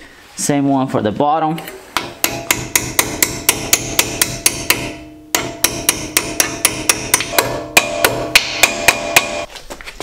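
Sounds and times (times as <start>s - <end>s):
hammer tapping metal pin: 2.0s - 9.5s.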